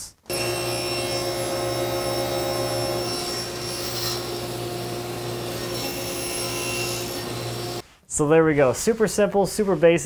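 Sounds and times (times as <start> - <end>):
table saw motor running: 0.3 - 7.8.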